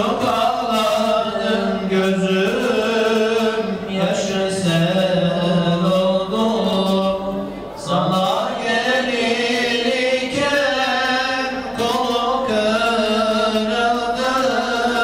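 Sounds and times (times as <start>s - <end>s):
man chanting: 0.0s - 15.0s.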